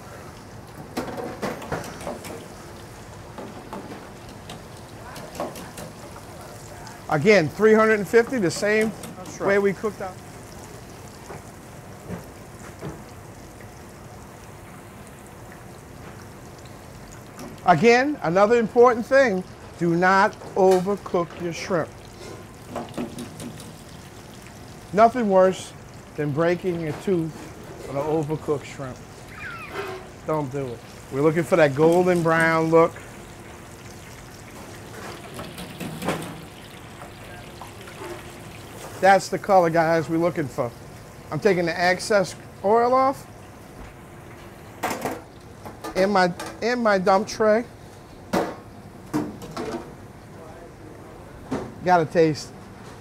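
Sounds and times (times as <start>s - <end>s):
oil sizzling and bubbling: 0.0s - 53.0s
oil popping: 0.1s - 46.7s.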